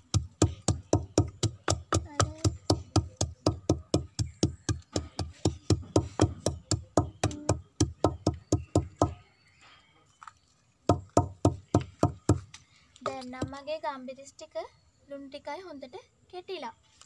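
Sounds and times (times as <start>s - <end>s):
pestle pounding in wooden mortar: 0.0s - 9.2s, 10.9s - 12.5s.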